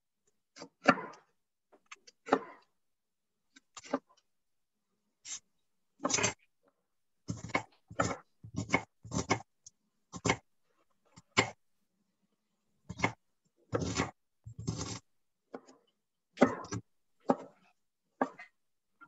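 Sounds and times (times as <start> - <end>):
knife chopping on wooden board: 7.3 - 9.5, 10.1 - 10.4, 11.3 - 11.6, 12.9 - 15.0, 16.4 - 18.4.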